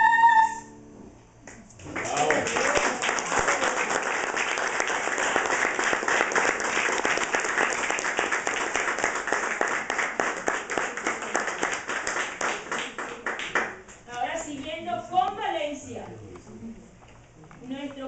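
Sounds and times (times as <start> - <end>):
audience applauding: 1.5 - 13.9.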